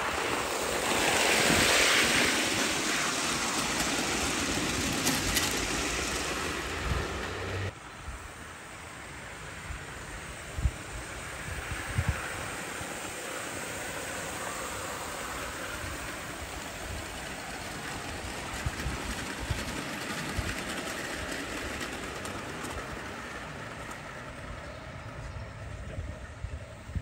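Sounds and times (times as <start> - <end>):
model steam locomotive hissing: 0.0 - 27.0.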